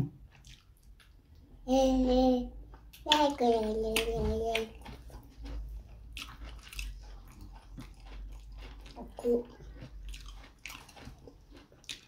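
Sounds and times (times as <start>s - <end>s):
mouth eating sounds: 2.9s - 12.0s.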